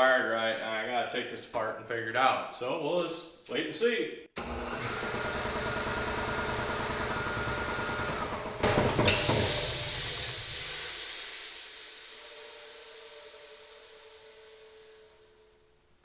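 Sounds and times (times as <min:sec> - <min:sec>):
air compressor running: 0:04.4 - 0:15.6
loud hiss of air released: 0:08.7 - 0:15.8.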